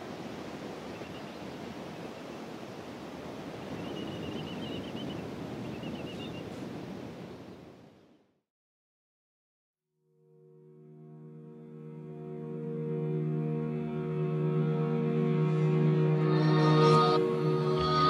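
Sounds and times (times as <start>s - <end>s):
small waves washing on sand: 0.0s - 7.5s.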